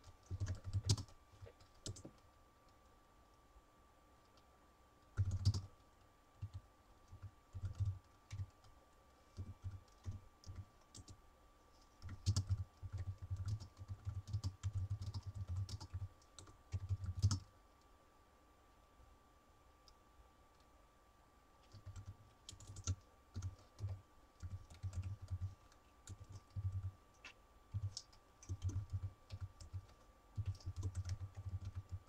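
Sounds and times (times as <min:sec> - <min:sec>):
typing on a computer keyboard: 0:00.0 - 0:02.2, 0:05.1 - 0:05.7, 0:06.4 - 0:11.2, 0:12.0 - 0:17.5, 0:21.6 - 0:32.0.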